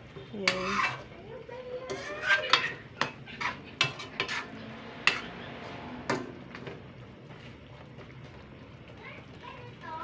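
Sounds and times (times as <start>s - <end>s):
spoon clinking and scraping in wok: 0.1s - 5.4s.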